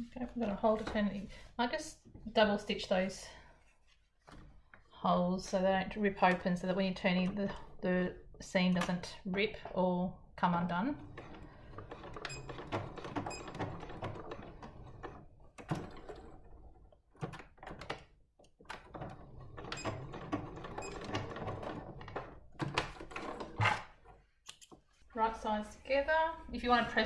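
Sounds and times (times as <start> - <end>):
sewing machine stitching: 18.8 - 24.0.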